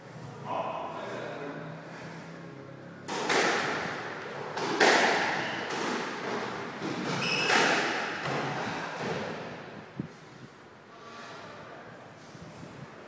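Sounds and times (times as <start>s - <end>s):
squash ball hits echoing: 3.1s - 9.5s.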